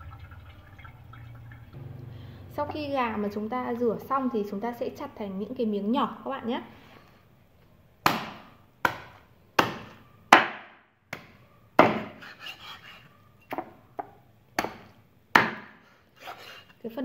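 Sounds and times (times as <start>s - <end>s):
cleaver chopping on wooden board: 8.0s - 12.2s, 14.6s - 15.8s.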